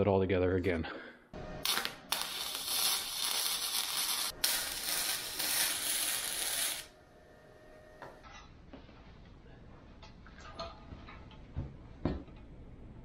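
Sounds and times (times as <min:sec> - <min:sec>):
arc welder crackling and hissing: 0:01.6 - 0:07.0.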